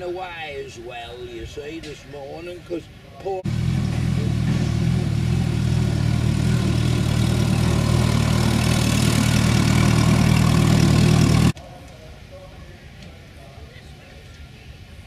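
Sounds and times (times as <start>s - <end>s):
tractor engine idling: 3.4s - 11.6s.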